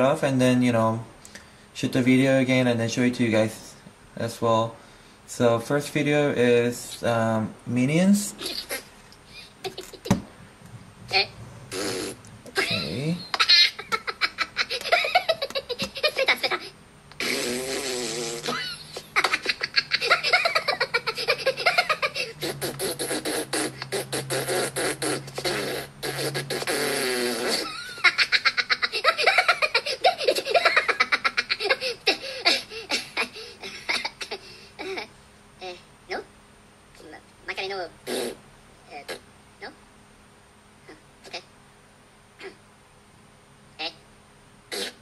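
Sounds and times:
rapid clicking mouth sounds: 22.4 - 27.6.

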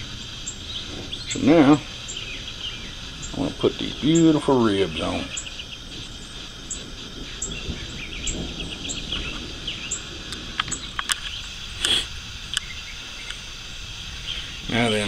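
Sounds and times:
rustle: 0.0 - 15.0
sharp clicks: 10.3 - 13.4.

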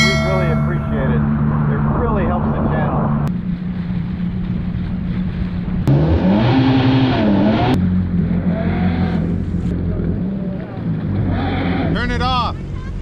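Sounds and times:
jet ski engines droning: 0.0 - 13.0
engine revving: 5.8 - 12.8.

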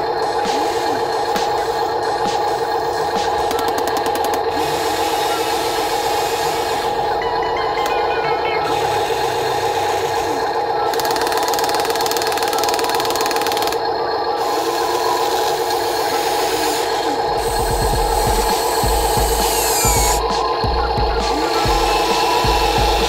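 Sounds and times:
small electric motor whining: 11.3 - 20.2.

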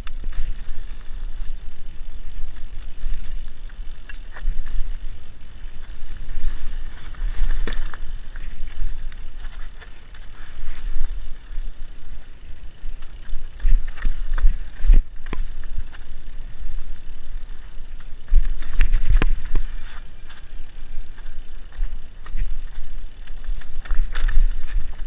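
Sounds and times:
bike rattling over bumps: 0.0 - 25.0
bike tyres on dirt: 0.0 - 25.0
wind on microphone: 17.9 - 25.0.

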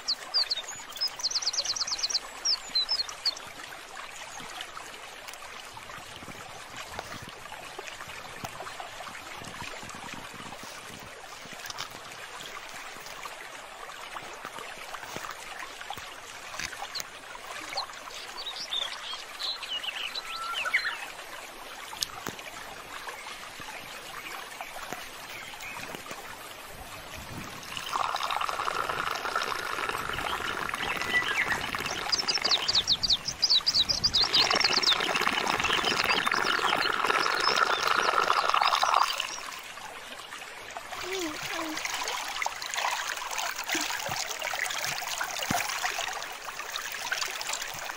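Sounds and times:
water flowing along a canal: 0.0 - 47.9
birds chirping: 27.8 - 39.5.

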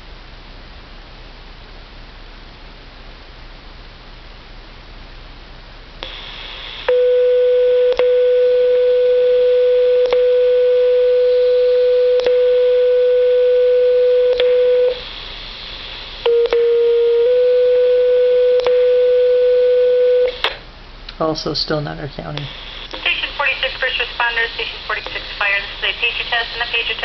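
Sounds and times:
radio hiss: 6.0 - 6.9, 15.0 - 16.2, 22.1 - 27.0
radio paging tones: 22.4 - 27.0.

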